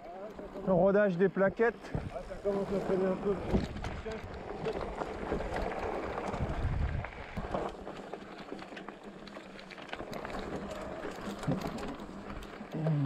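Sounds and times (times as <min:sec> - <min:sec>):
bike clicks and rattles: 0:00.0 - 0:13.0
tyres crunching on gravel: 0:01.6 - 0:13.0
wind rumbling on microphone: 0:03.2 - 0:07.7.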